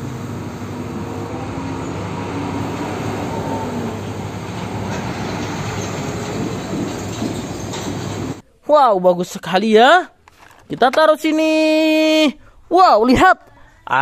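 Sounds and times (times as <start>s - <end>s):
road and tyre noise: 0.0s - 8.4s
truck engine hum: 0.0s - 8.4s.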